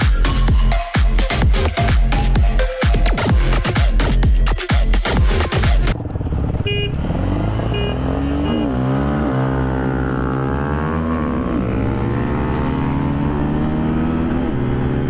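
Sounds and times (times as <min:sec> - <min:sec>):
motorcycle engine accelerating: 0:05.8 - 0:15.0.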